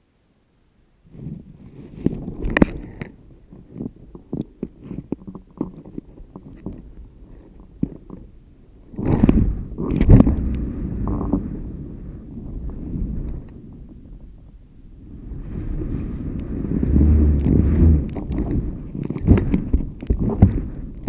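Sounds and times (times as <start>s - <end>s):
wind buffeting microphone: 1.1s - 21.0s.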